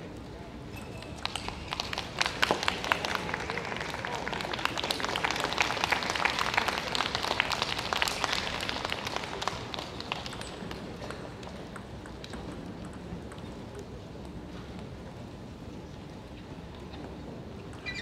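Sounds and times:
audience clapping: 1.1s - 11.1s.

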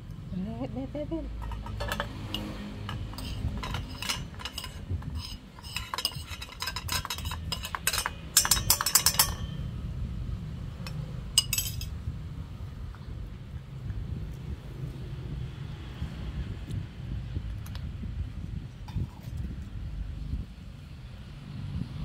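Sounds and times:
metal spoon clinking on steel bowl: 1.4s - 9.7s, 10.8s - 12.0s.

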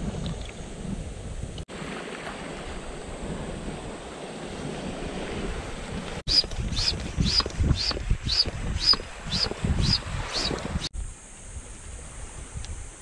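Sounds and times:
wind: 0.0s - 13.0s
waves lapping: 1.7s - 10.9s.

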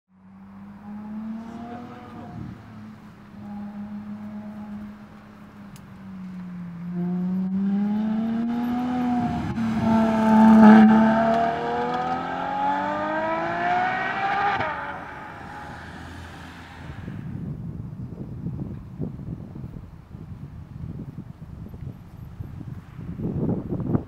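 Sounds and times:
car engine accelerating hard: 0.5s - 17.4s.

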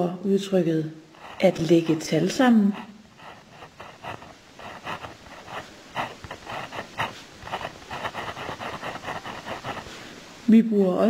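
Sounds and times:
pen writing on paper: 1.2s - 10.0s.

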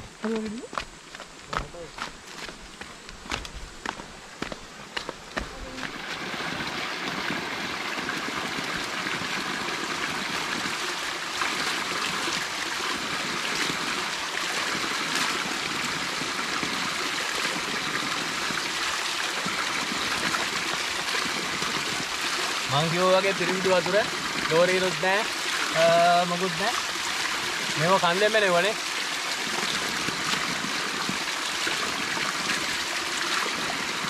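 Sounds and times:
water jet splashing onto rocks: 4.4s - 34.0s.

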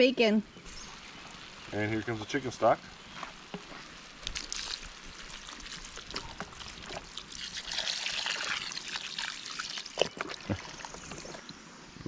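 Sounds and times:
small crackles: 0.5s - 11.6s
liquid pouring and splashing: 4.2s - 11.6s.

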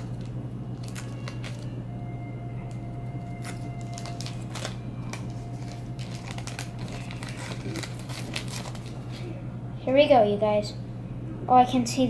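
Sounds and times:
foil wrapper crinkling: 0.0s - 1.8s, 2.6s - 9.2s
steady low hum: 0.0s - 12.0s.

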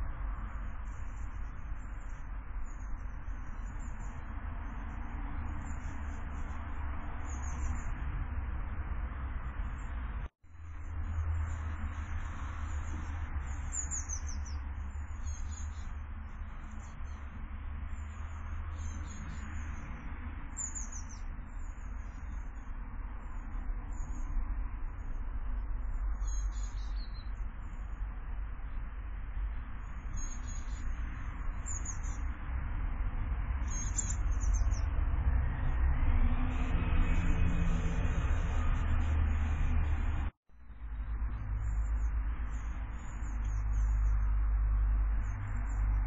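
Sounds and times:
small birds chirping: 0.0s - 35.8s, 36.4s - 46.0s
faint bird chirps: 10.6s - 19.9s, 25.8s - 28.8s, 29.4s - 32.3s, 33.6s - 34.9s, 41.0s - 44.3s
steady low rumble: 21.4s - 46.0s.

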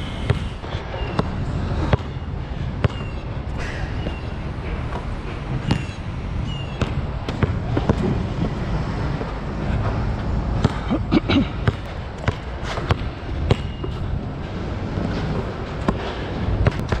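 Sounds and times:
basketball bouncing on court: 0.2s - 0.5s, 1.1s - 6.1s, 6.7s - 9.3s, 10.6s - 14.1s, 15.3s - 17.0s.

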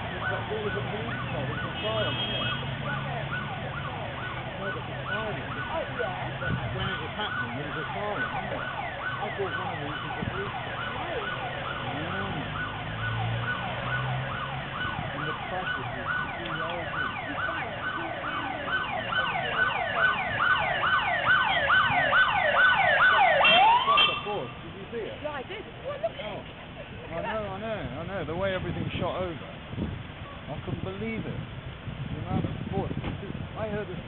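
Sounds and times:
siren yelping: 0.0s - 1.8s, 2.4s - 24.5s.

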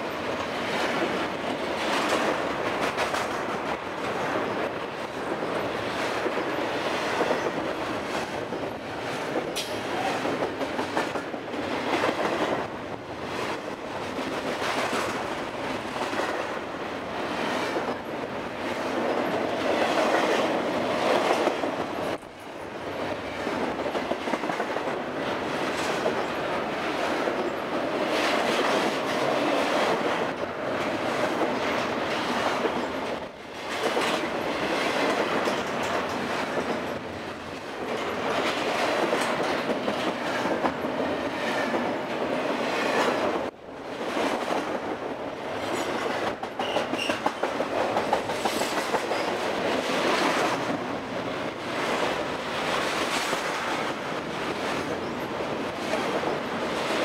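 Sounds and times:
freight train wheels rattling on rails: 0.0s - 57.0s.

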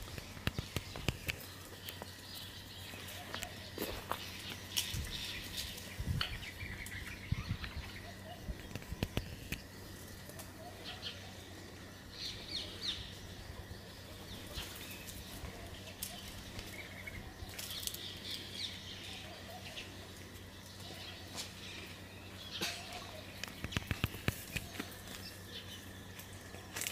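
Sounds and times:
low steady hum: 0.0s - 26.9s
small birds chirping: 0.0s - 26.9s
sharp clicks: 23.4s - 24.9s.

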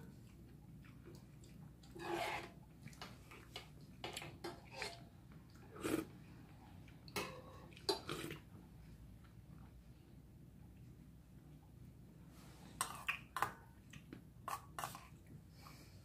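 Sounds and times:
slurping: 5.6s - 6.2s.

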